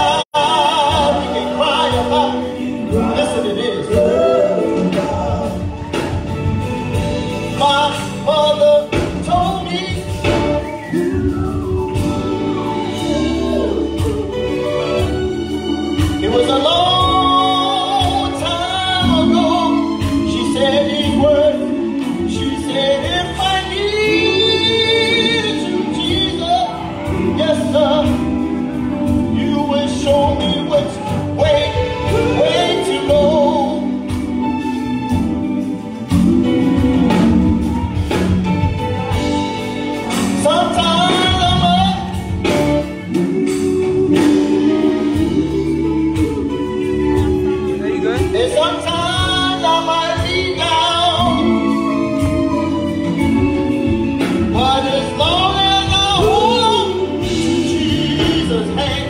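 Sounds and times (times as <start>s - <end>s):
male voices singing gospel: 0.0s - 38.4s, 40.2s - 59.0s
keyboard: 0.0s - 59.0s.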